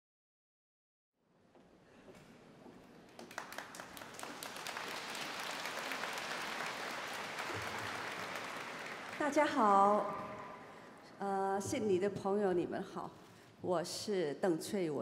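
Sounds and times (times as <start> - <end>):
audience applause: 3.1 - 9.9.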